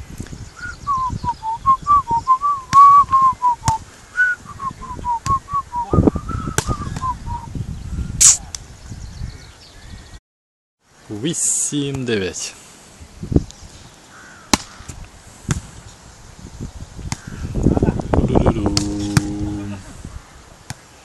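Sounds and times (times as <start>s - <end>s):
short whistled notes: 0.6s - 7.5s.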